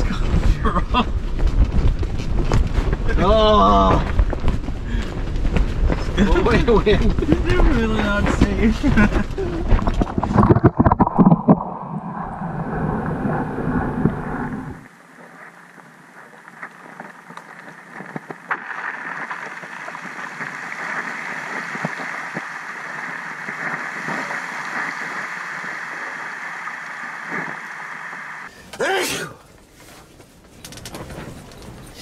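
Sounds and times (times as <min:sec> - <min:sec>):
low rumbling wind: 0:00.0 - 0:28.5
muffled underwater hiss: 0:07.1 - 0:28.5.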